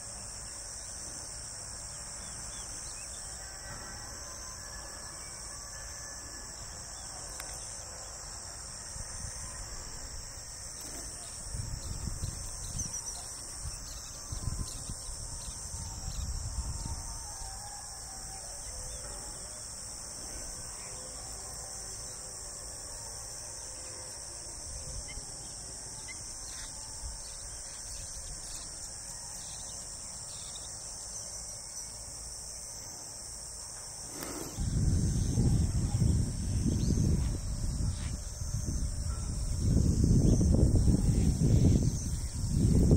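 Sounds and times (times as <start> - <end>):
insect chorus chirring: 0.0 - 42.9
wind rumble on microphone: 11.2 - 19.1, 34.1 - 42.9.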